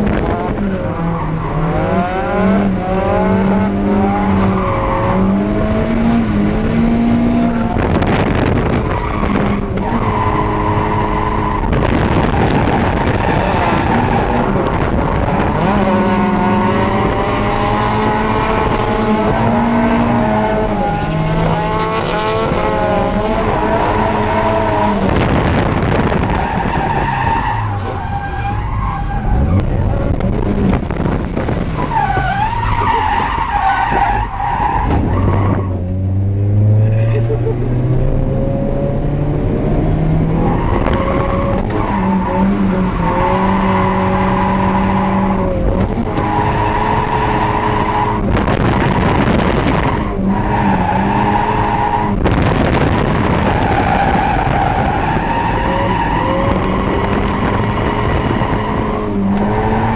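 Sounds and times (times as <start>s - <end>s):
car engine revving: 0.0s - 59.9s
tyres squealing and skidding: 26.1s - 30.0s, 31.7s - 35.8s, 36.7s - 38.0s, 40.4s - 48.3s, 49.6s - 52.3s, 53.3s - 59.9s.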